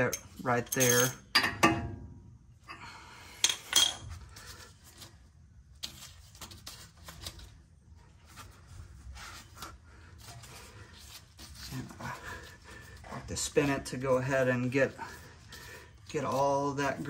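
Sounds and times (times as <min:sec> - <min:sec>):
metallic clinks of hand tool: 0:00.0 - 0:01.2.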